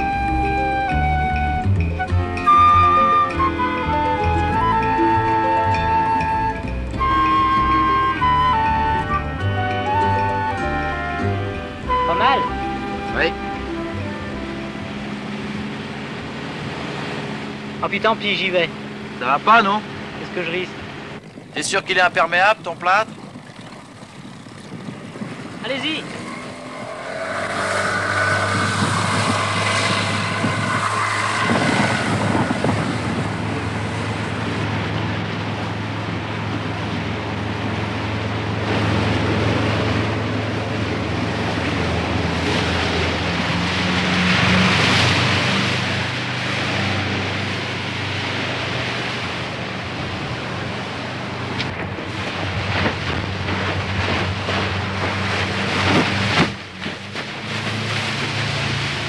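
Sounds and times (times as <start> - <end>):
motorboat engine running: 0.0 - 59.0
water rushing and spraying: 11.8 - 59.0.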